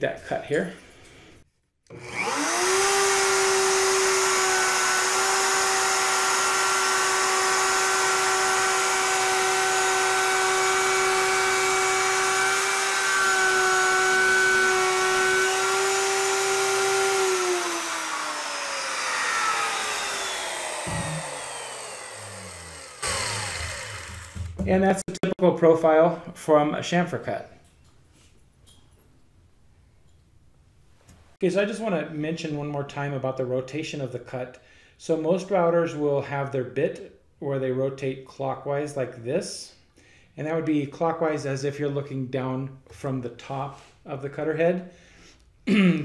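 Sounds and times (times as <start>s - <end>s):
router whining: 1.9s - 25.2s.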